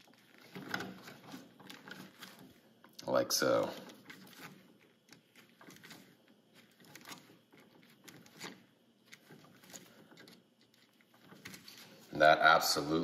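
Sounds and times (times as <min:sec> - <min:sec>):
pliers clicking and scraping wire: 0:03.7 - 0:11.9.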